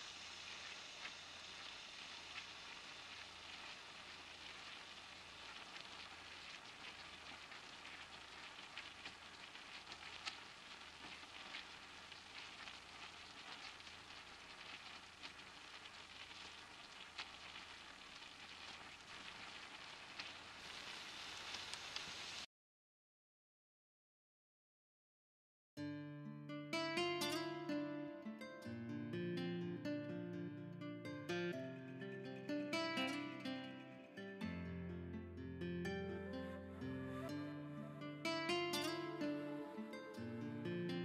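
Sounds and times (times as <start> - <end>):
deep-frying sizzling hiss: 0.0 - 22.5
oil crackles and pops: 0.0 - 22.5.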